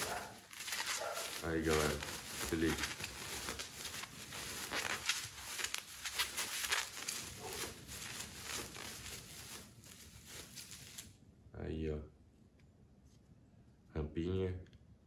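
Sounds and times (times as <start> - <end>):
plastic packaging crinkling: 0.0 - 11.1.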